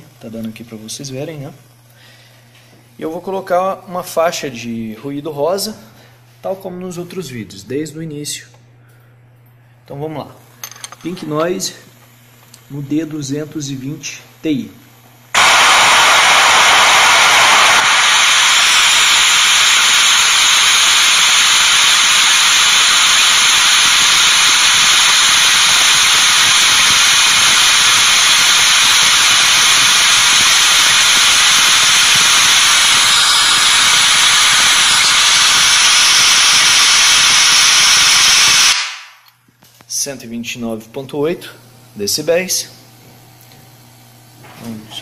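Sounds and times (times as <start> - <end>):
loud high-pitched hiss from speaker: 15.3 - 40.1.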